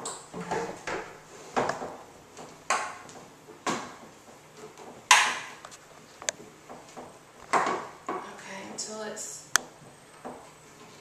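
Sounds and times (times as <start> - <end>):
plastic knocks and scrapes: 0.0 - 8.3.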